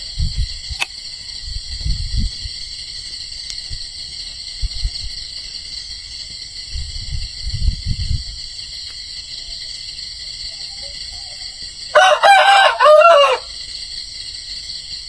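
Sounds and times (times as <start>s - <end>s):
low bumps and rumbles: 0.0s - 5.4s, 6.2s - 8.6s
chorus of night insects: 0.0s - 15.0s
sharp click: 0.8s - 1.0s.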